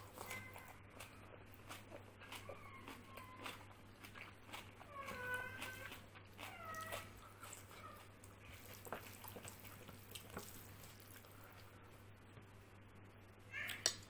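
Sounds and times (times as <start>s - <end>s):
fingers mixing food: 0.0s - 11.7s
cat meow: 0.1s - 0.8s, 4.9s - 5.9s, 13.5s - 13.9s.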